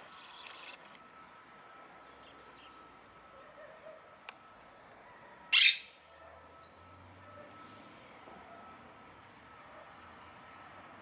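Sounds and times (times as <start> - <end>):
parakeet squawk: 5.5 - 5.9.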